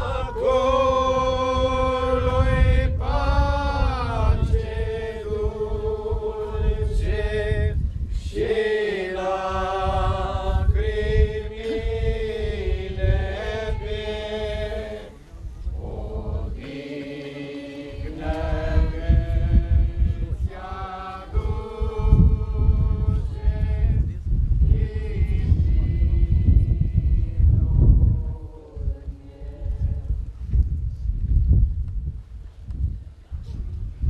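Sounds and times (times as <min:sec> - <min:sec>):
slow hymn singing: 0:00.0 - 0:30.4
low rumble: 0:18.0 - 0:34.0.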